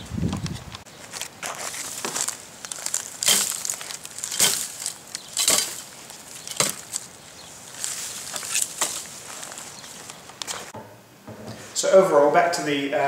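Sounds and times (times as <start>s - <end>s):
shovel chopping into dry ground: 1.4s - 7.1s, 8.2s - 9.1s.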